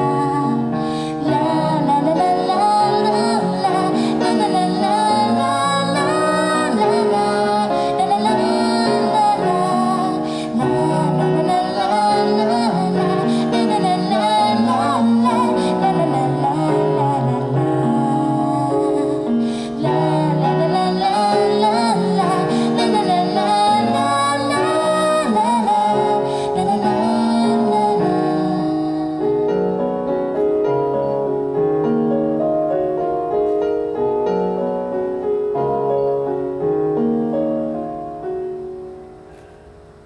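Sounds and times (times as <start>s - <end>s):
woman singing: 0.0s - 30.0s
keyboard playing piano sound: 0.0s - 40.0s.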